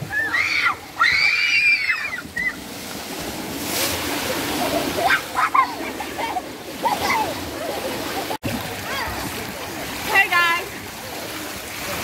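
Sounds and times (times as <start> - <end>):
children shrieking and shouting: 0.0 - 2.6, 4.9 - 7.7
water splashing in pool: 0.0 - 12.0.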